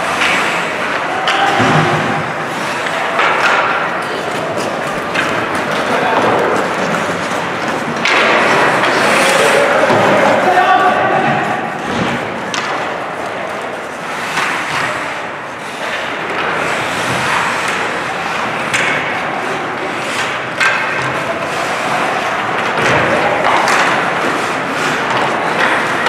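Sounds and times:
skates scraping on ice: 0.0 - 26.0
hockey stick and puck knocks: 1.2 - 9.3, 11.8 - 13.0, 22.6 - 26.0.

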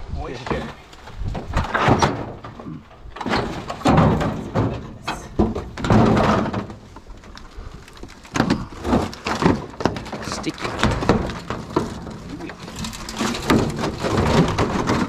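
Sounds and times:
tin sheets scraping and clanking: 8.3 - 15.0.

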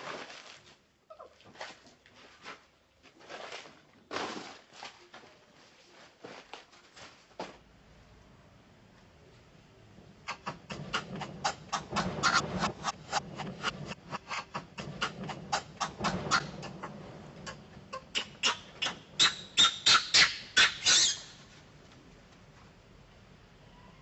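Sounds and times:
young macaque squealing: 10.3 - 12.4, 17.5 - 21.4.

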